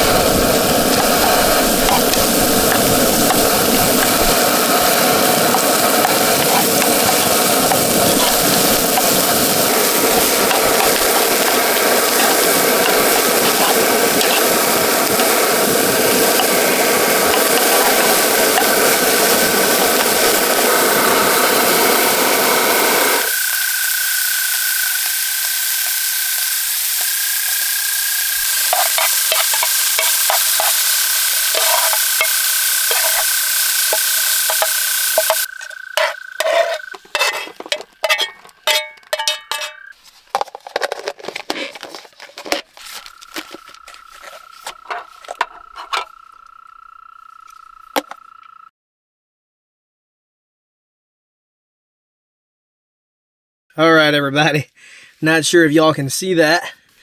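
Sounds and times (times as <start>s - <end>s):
steady low rush: 0.0s - 39.0s
steak sizzling in a frying pan: 0.0s - 39.9s
tongs scraping a pan: 28.6s - 46.1s.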